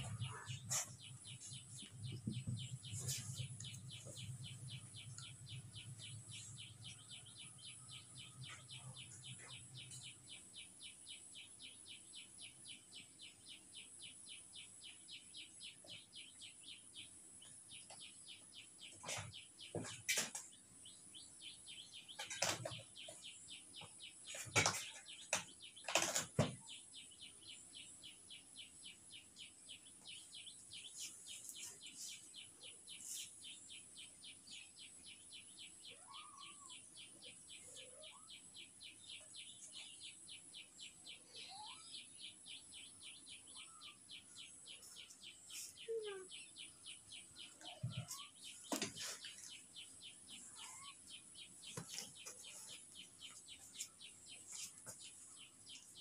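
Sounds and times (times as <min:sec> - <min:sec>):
small high chirps: 0:35.8 - 0:40.0, 0:41.2 - 0:42.4, 0:43.4 - 0:56.0.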